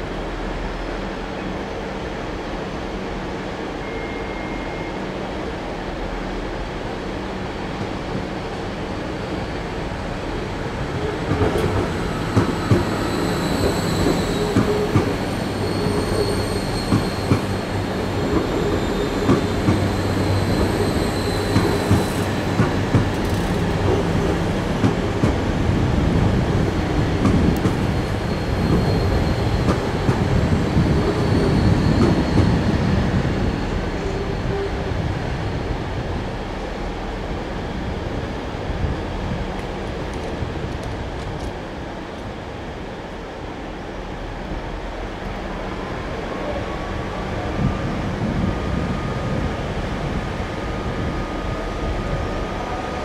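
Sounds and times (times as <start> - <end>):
high wheel squeal: 11.9 - 22.4, 27.9 - 29.7, 30.7 - 32.8
train wheels clicking over rail joints: 21.5 - 25.4.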